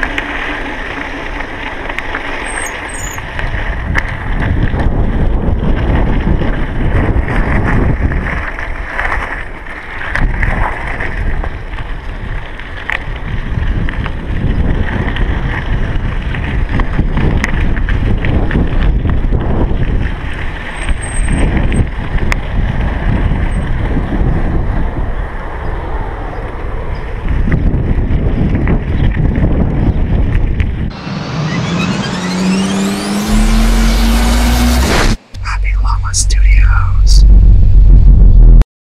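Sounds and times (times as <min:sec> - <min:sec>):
wind buffeting microphone: 0:03.2 - 0:30.9.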